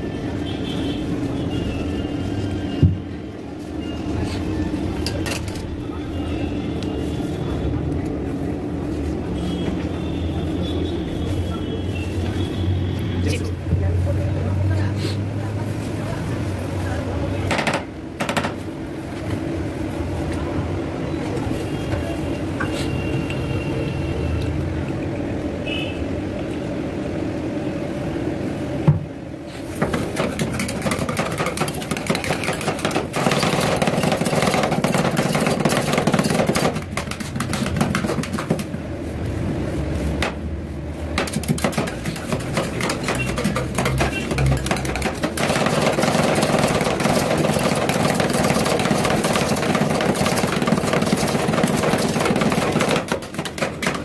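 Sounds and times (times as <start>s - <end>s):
metal spatulas chopping and scraping: 29.8s - 38.7s, 41.1s - 54.0s.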